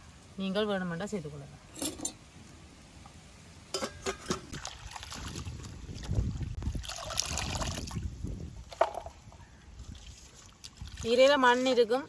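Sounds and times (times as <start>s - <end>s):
water splashing over leaves: 4.5s - 8.2s, 9.7s - 12.0s.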